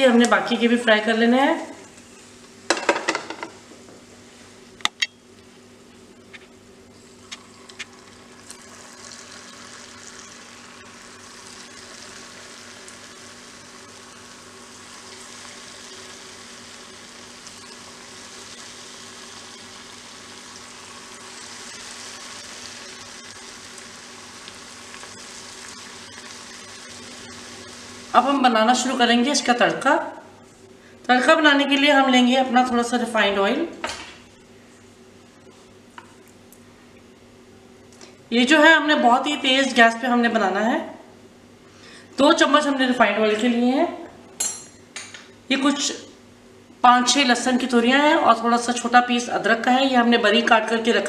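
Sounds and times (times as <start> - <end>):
food sizzling in hot oil: 7.4 - 29.0.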